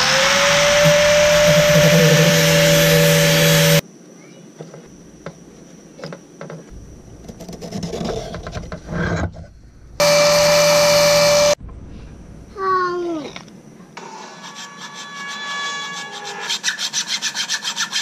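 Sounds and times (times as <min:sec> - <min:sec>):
angle grinder grinding wood: 0:00.0 - 0:03.8, 0:10.0 - 0:11.6
hand rubbing and scraping wood: 0:07.2 - 0:09.5.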